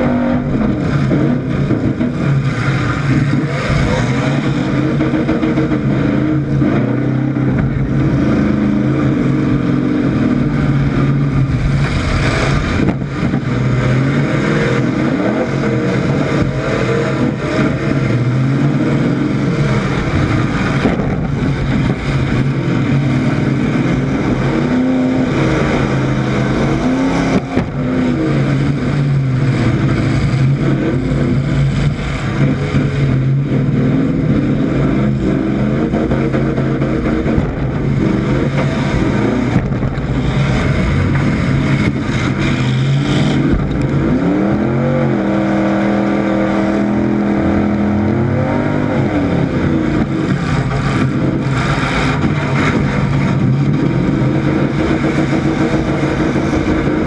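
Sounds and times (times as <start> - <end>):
truck engine revving: 0.0 - 57.0.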